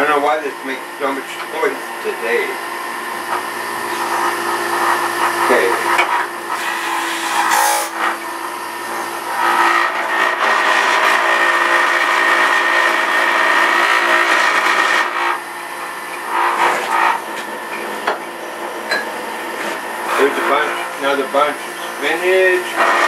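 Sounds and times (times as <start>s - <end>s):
juicer motor whining: 0.0s - 23.0s
person speaking: 20.1s - 22.7s.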